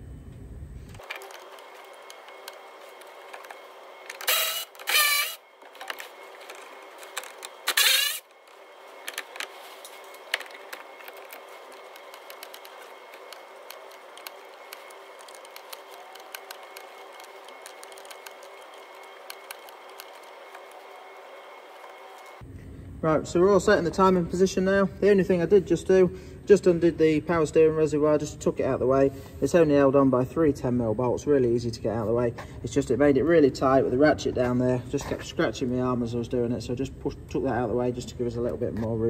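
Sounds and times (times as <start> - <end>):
power ratchet whirring: 1.0 - 22.4.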